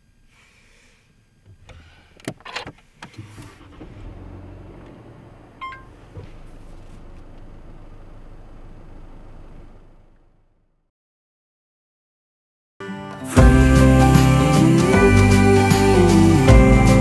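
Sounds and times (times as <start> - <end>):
car engine starting and idling: 1.4 - 10.8
car ignition clicks: 1.5 - 10.3
short electronic beep: 5.6 - 5.9.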